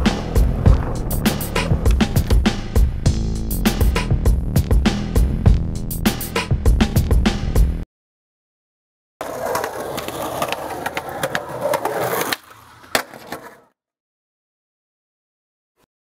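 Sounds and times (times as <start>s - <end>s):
skateboard clacks: 0.0s - 2.6s, 9.2s - 13.6s
skateboard wheels rolling on concrete: 0.0s - 3.2s, 9.2s - 13.7s
music: 0.0s - 7.8s.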